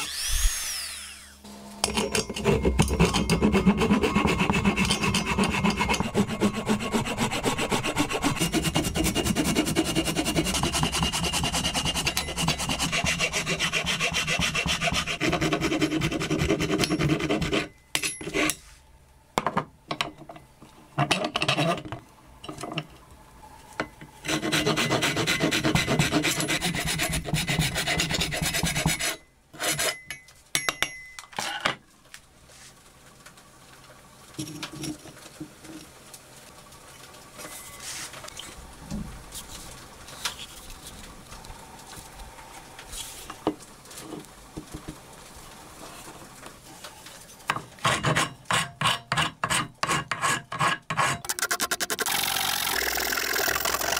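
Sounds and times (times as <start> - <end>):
rasp scraping wood: 2.3 - 17.7, 24.2 - 30.0, 47.8 - 52.0.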